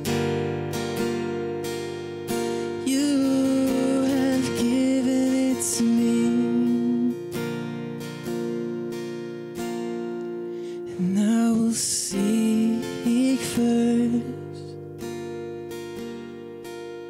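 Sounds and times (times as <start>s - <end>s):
man singing: 0.0s - 0.4s, 2.5s - 7.5s, 10.8s - 14.8s
strummed acoustic guitar: 0.0s - 17.0s.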